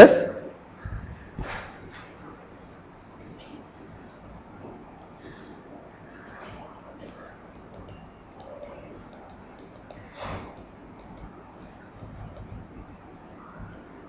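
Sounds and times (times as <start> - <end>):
low room noise: 0.0 - 14.0
stylus tapping on screen: 6.2 - 12.9.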